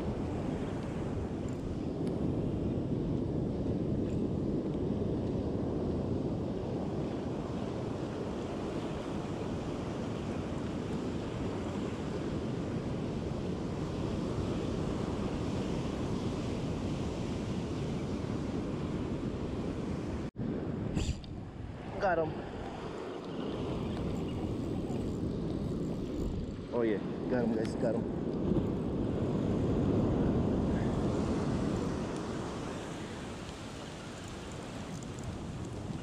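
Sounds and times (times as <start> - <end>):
wind buffeting microphone: 0.0 - 36.0
ocean surf breaking: 28.9 - 36.0.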